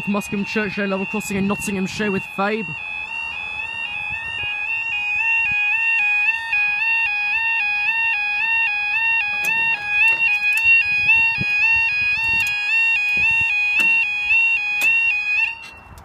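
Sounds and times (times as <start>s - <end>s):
warbling two-tone alarm: 0.0s - 15.8s
short knocks: 13.2s - 14.2s.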